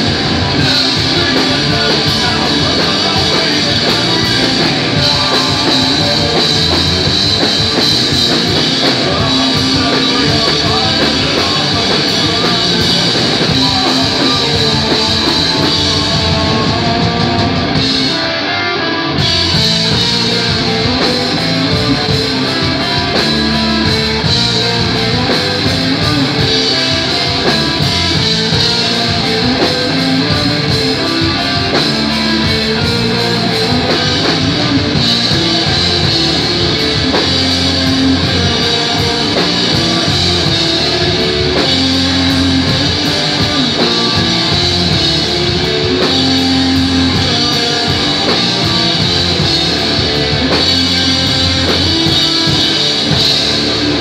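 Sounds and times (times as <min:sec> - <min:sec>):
drum kit: 0:00.0 - 0:54.0
electric guitars: 0:00.0 - 0:54.0.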